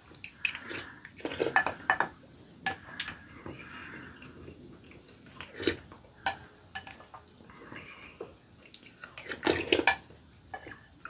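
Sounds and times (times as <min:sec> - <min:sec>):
soft chewing: 0:00.0 - 0:02.0, 0:02.7 - 0:11.0.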